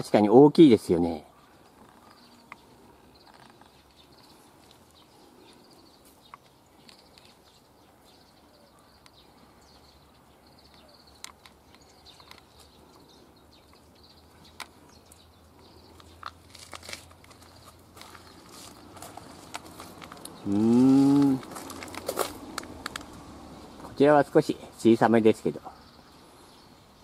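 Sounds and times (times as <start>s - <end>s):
faint high chirping: 1.2s - 15.9s
footsteps crunching on dry leaves: 16.3s - 24.0s.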